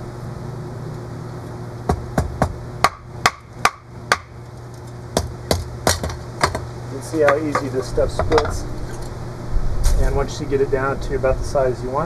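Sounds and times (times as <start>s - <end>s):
hatchet splitting wood: 1.9s - 4.3s, 5.2s - 8.5s.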